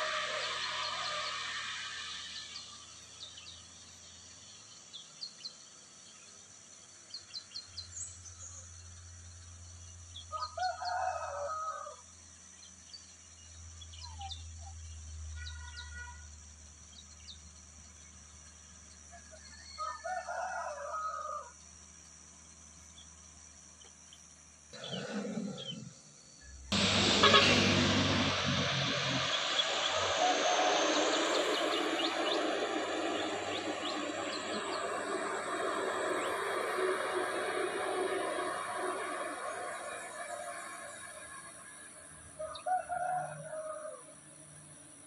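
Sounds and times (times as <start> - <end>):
rooster crowing: 10.3 - 12.0, 19.6 - 21.6, 42.4 - 44.2
faint low engine drone: 21.5 - 45.0.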